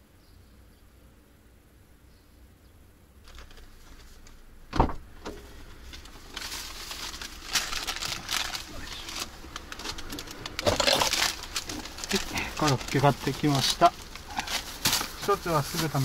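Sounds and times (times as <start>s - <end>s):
plastic bag rustling: 3.2s - 4.4s, 5.3s - 16.0s
van door thumping: 4.7s - 5.5s.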